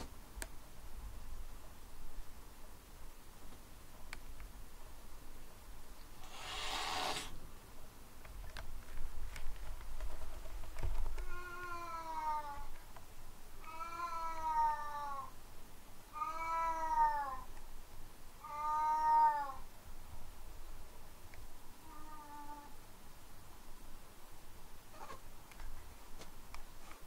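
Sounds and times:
cat meowing: 0:13.6 - 0:15.3, 0:16.2 - 0:17.5, 0:18.4 - 0:19.6, 0:21.8 - 0:22.8.

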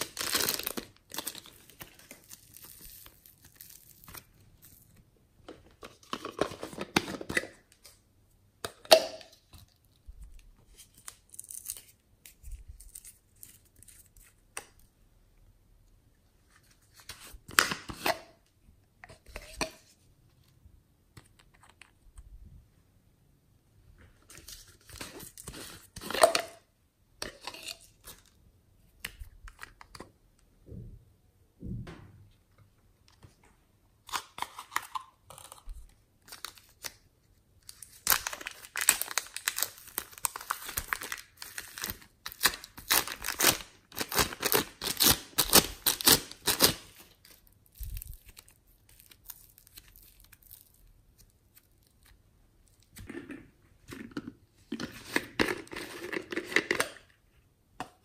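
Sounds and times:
plastic bag crinkling and tearing: 0:00.0 - 0:04.8, 0:37.6 - 0:52.2.

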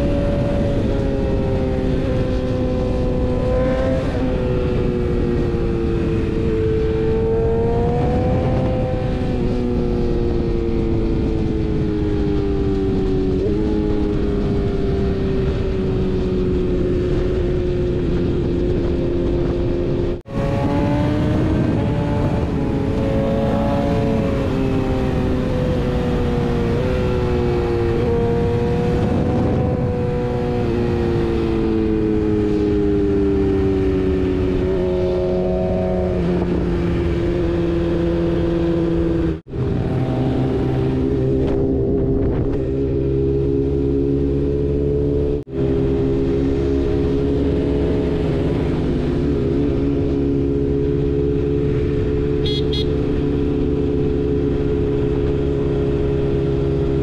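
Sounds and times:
wind rushing: 0:00.0 - 0:52.3
motorcycle engine running: 0:12.5 - 0:57.0.

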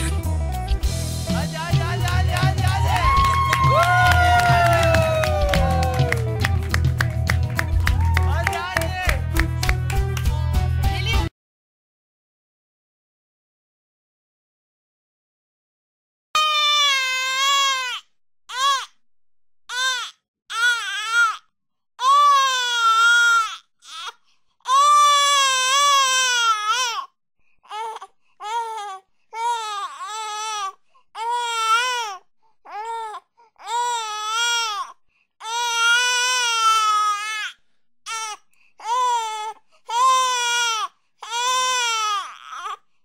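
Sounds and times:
baby crying: 0:16.4 - 0:18.9, 0:19.7 - 0:21.4, 0:22.0 - 0:42.8.

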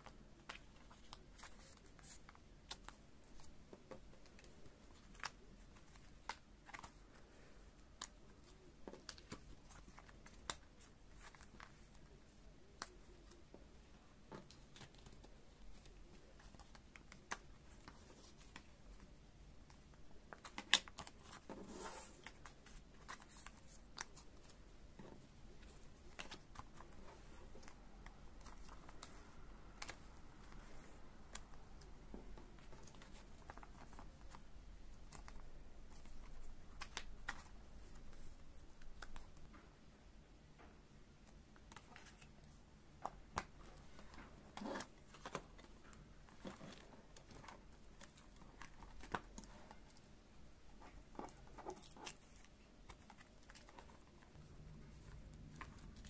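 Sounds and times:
plastic sleeves clicking and tapping: 0:19.6 - 0:21.6.

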